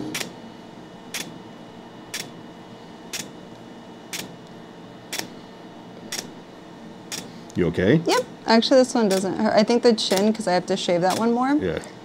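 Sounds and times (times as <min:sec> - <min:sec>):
laser device clicking: 0:01.1 - 0:01.4, 0:02.1 - 0:02.4, 0:03.1 - 0:03.4, 0:04.1 - 0:05.3, 0:06.1 - 0:06.3, 0:09.0 - 0:09.4, 0:10.0 - 0:10.4, 0:11.0 - 0:11.4.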